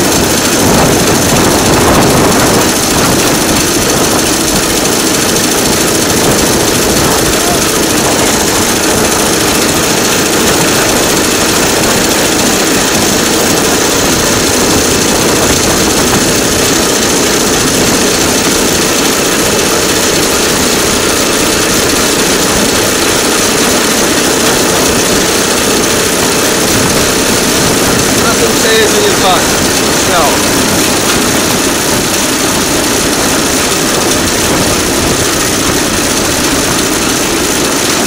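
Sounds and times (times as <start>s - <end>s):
rail draisine engine: 0.0s - 38.0s
wheels rattling on rails: 0.0s - 38.0s.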